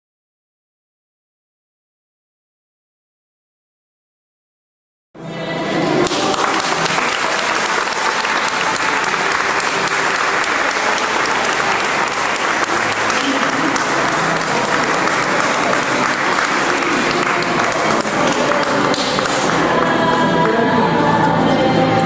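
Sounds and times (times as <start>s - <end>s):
crowd applauding: 5.9s - 20.7s.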